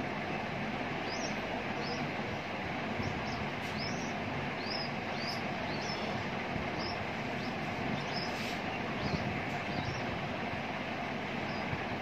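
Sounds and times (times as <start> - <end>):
background hiss and rumble: 0.0 - 12.0
nestling bird cheeping: 3.0 - 10.1.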